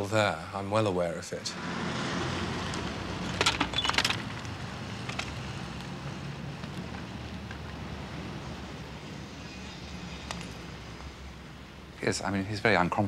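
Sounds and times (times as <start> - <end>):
bicycle rattling on rough ground: 3.2 - 5.9.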